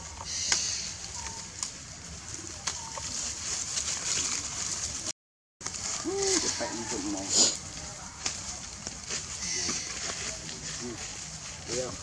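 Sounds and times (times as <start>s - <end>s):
thin animal calls: 0.0s - 1.6s, 2.4s - 3.3s, 5.9s - 7.6s, 9.3s - 11.0s.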